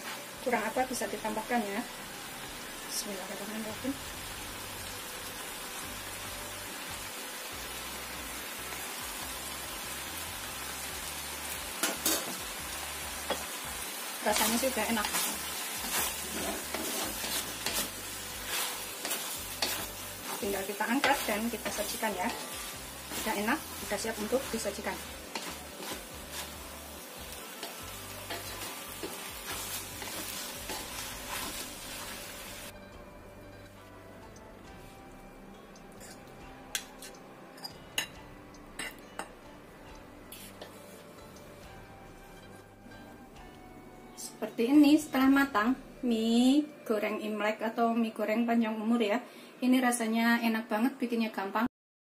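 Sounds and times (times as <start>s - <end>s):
noodles sizzling in a wok: 0.0s - 32.8s, 38.7s - 43.2s
spatula scraping a wok: 11.8s - 12.4s, 14.4s - 26.8s, 27.6s - 32.7s, 35.9s - 37.8s, 40.3s - 41.1s.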